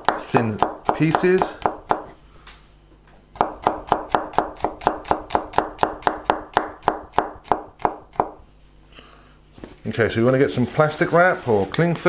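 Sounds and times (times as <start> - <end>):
knife chopping on wooden board: 0.0 - 2.1, 3.4 - 8.4.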